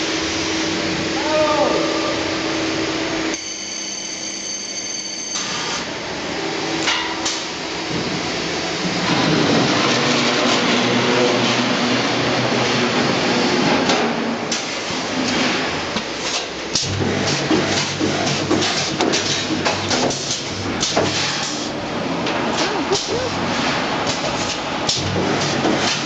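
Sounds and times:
welding machine noise: 5.3s - 26.0s.

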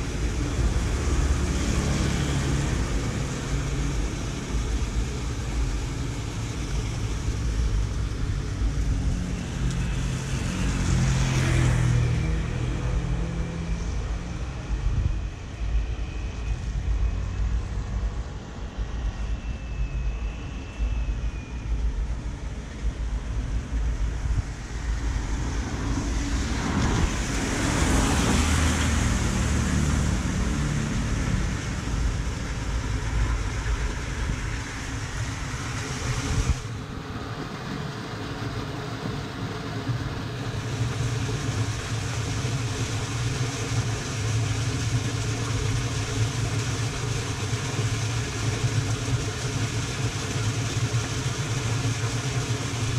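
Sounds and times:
tyre hiss on wet road: 24.5s - 37.2s.

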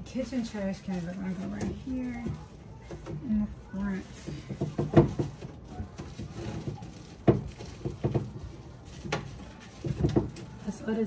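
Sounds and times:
household items knocking and clattering: 0.0s - 11.0s.

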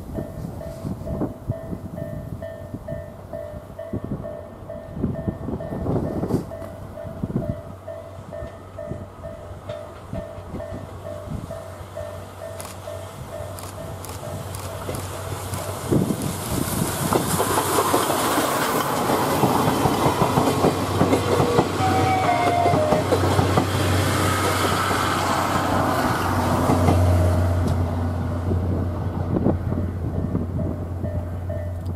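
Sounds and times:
train wheels clattering over rail joints: 12.3s - 27.9s.

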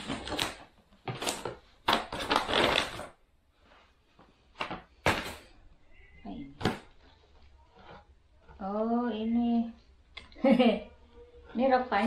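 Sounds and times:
paper bag and packaging rustling: 0.0s - 3.2s.

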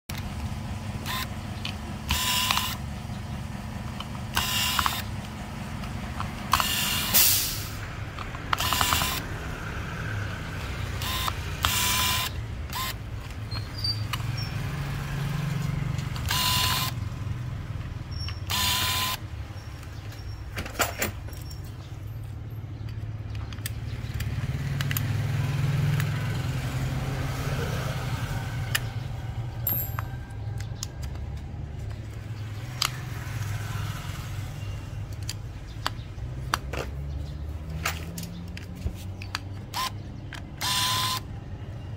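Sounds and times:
electric screwdriver whirring: 1.0s - 1.4s, 2.0s - 2.8s, 4.3s - 5.2s, 6.2s - 7.2s, 8.4s - 9.3s, 10.9s - 13.0s, 16.2s - 17.0s, 18.5s - 19.2s, 39.6s - 41.3s.

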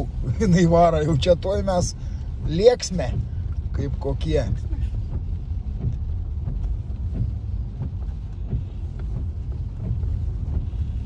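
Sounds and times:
car engine and road rumble: 0.0s - 11.0s.

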